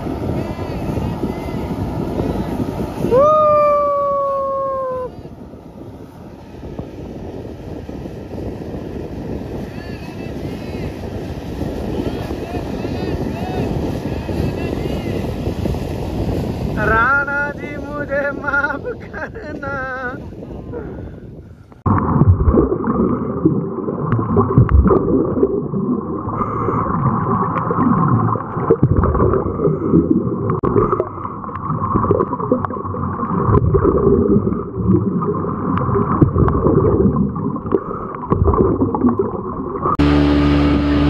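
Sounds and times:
muffled underwater bubbling water: 0:21.7 - 0:40.2.

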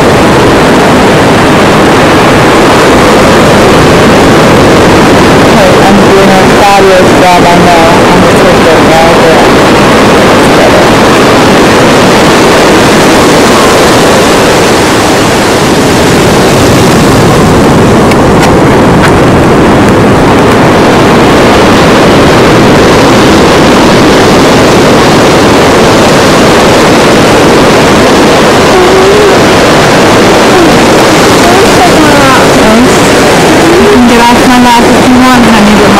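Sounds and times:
ocean surf rushing: 0:00.0 - 0:35.9
wind buffeting microphone: 0:00.0 - 0:35.9.

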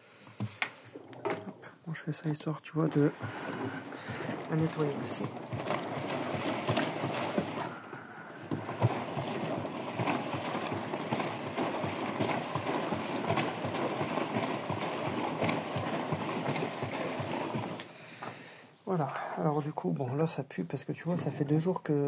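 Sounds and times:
water sloshing in washing machine drum: 0:00.9 - 0:18.1.

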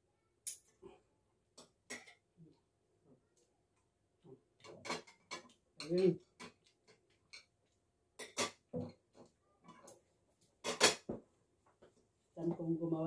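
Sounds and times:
cutlery clinking on a plate: 0:04.6 - 0:07.5, 0:08.2 - 0:09.0, 0:10.6 - 0:11.2.

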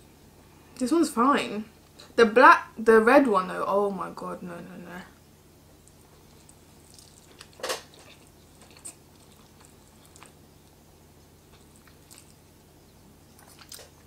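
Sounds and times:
soft chewing: 0:05.6 - 0:14.0.

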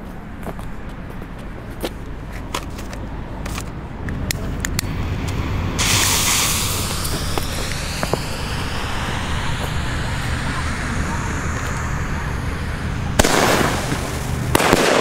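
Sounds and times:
low rumble of road traffic: 0:00.0 - 0:15.0
firework fuse hissing: 0:04.7 - 0:15.0.

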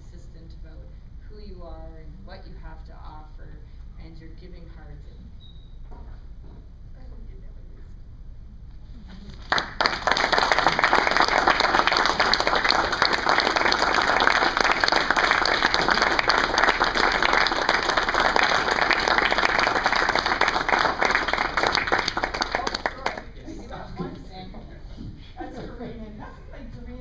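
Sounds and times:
audience applauding: 0:09.3 - 0:23.5.

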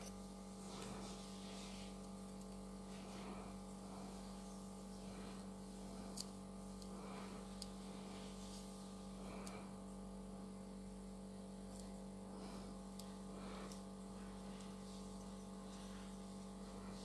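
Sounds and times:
steady electrical hum: 0:00.0 - 0:17.0.

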